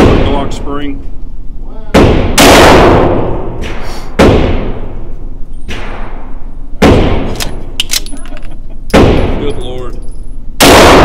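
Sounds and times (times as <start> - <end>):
pistol shots echoing: 2.0 - 5.1, 5.7 - 7.8, 8.9 - 9.6, 10.6 - 11.0.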